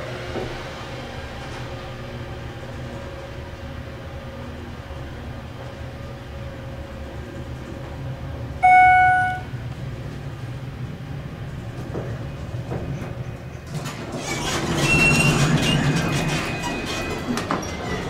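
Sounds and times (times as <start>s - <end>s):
elevator hum: 0.0s - 14.2s
electronic arrival chime: 8.6s - 9.5s
elevator doors sliding open: 12.8s - 18.0s.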